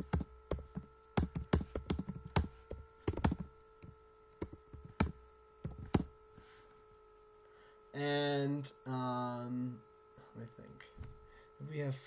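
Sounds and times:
computer keyboard typing: 0:00.0 - 0:03.5, 0:04.4 - 0:06.1.

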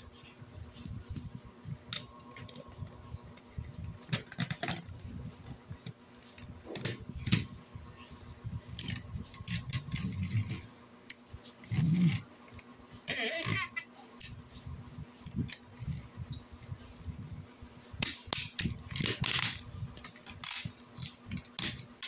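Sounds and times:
plastic toy parts clicking: 0:18.0 - 0:21.9.

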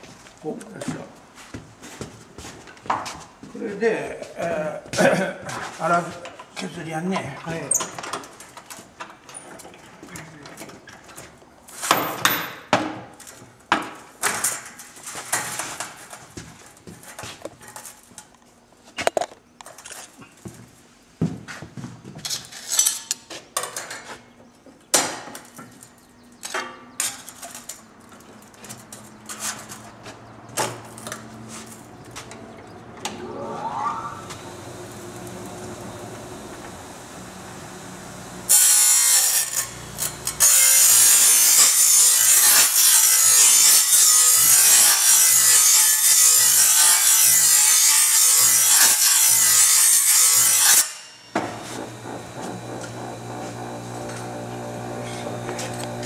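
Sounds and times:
bench grinder motor whining: 0:33.0 - 0:41.6, 0:51.4 - 0:56.0.

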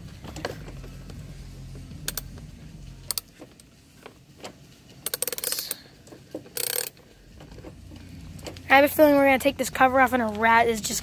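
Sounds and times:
ratchet clicking: 0:02.0 - 0:02.4, 0:03.0 - 0:03.7, 0:05.0 - 0:07.6.

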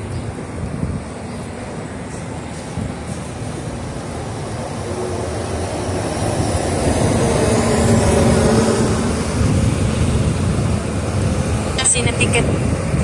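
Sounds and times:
bus engine drone: 0:00.0 - 0:13.0.

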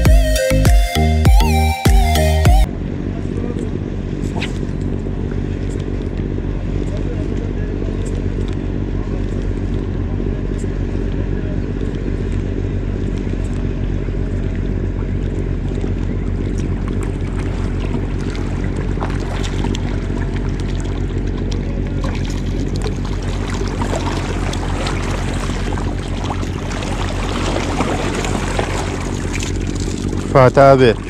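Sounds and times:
low motor hum: 0:00.0 - 0:31.0
fish splashing in water: 0:11.7 - 0:31.0.

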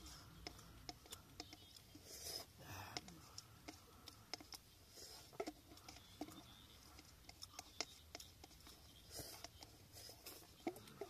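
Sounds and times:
faint eating clicks: 0:00.0 - 0:11.0
soft breathy sound: 0:02.0 - 0:06.2.

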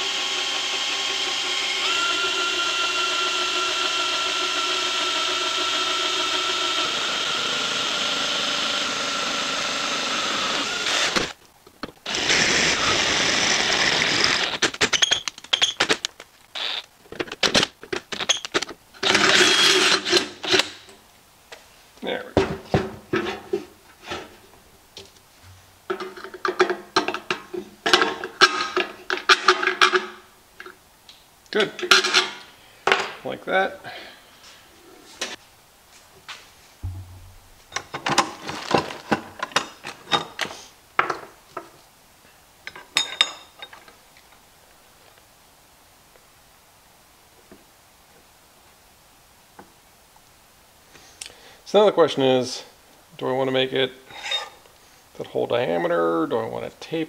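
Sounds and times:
cordless drill boring through steel: 0:00.0 - 0:11.3, 0:12.1 - 0:14.6, 0:19.0 - 0:20.1.

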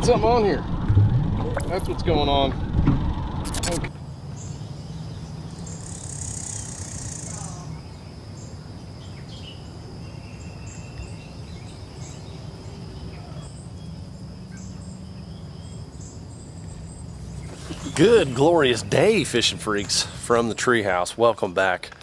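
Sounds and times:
insect drone: 0:01.6 - 0:02.1, 0:03.4 - 0:19.6
bird chirps: 0:03.5 - 0:18.8.

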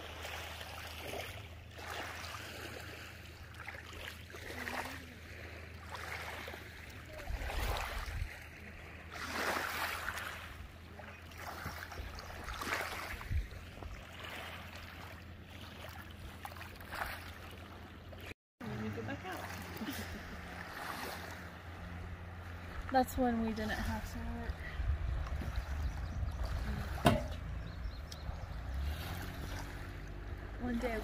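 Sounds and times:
waves lapping on gravel shore: 0:00.0 - 0:17.8, 0:18.9 - 0:25.8, 0:28.5 - 0:31.0.

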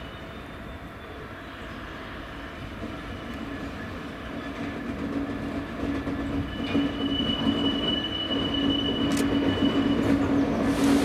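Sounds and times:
diesel locomotive engine drone: 0:00.0 - 0:11.0
high-pitched wheel squeal: 0:06.0 - 0:11.0.

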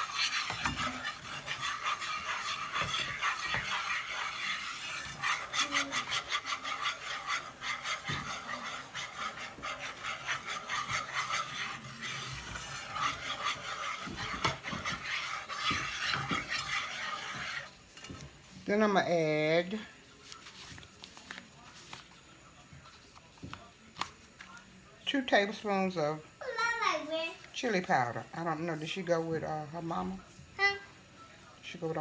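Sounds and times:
whisk scraping metal saucepan: 0:00.0 - 0:19.8.

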